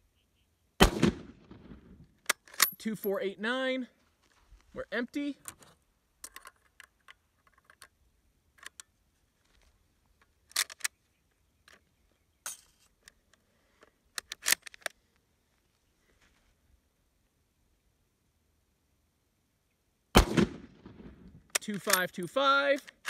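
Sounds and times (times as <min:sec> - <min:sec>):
rifle reloading clicks and clacks: 0:02.2 - 0:03.1, 0:05.4 - 0:08.9, 0:09.5 - 0:11.0, 0:14.1 - 0:15.0, 0:21.5 - 0:23.0.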